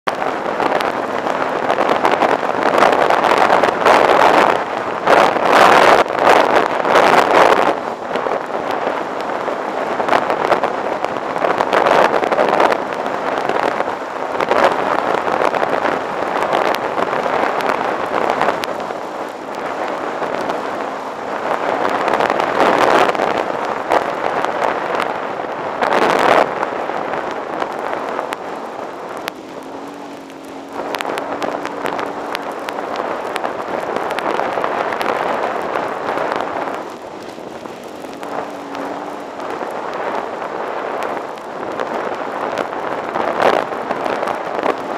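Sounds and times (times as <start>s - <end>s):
wind buffeting microphone: 0.1s - 44.9s
motorcycle engine: 26.8s - 41.3s.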